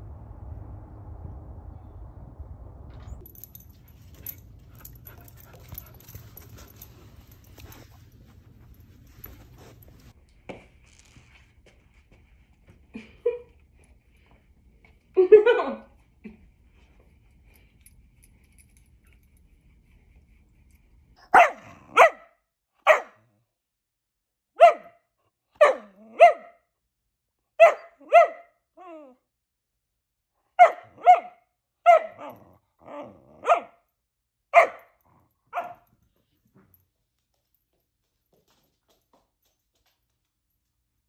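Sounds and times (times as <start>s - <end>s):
puppy barking: 21.2s - 23.3s, 24.6s - 25.0s, 25.6s - 26.6s, 27.6s - 28.6s, 30.6s - 32.4s, 33.0s - 33.8s, 34.5s - 35.9s.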